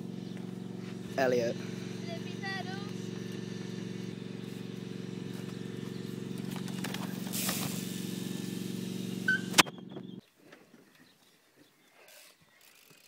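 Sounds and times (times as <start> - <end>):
low mechanical hum: 0.0 - 10.2.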